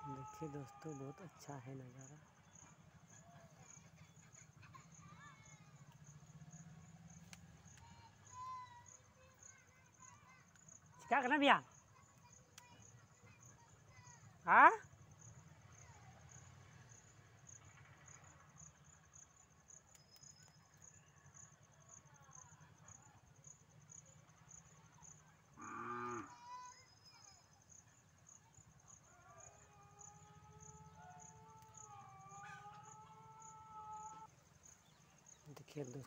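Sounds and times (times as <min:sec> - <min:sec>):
high pulsing insect chirp: 0:00.0 - 0:36.0
long wavering calls: 0:29.8 - 0:34.3.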